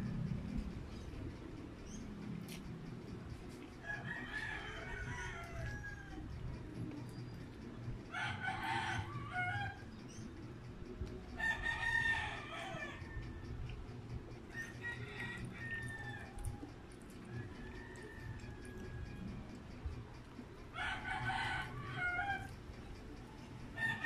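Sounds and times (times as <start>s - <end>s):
rooster crowing: 3.8s - 6.6s, 8.1s - 10.0s, 11.3s - 13.7s, 14.5s - 19.6s, 20.7s - 22.6s, 23.7s - 24.0s.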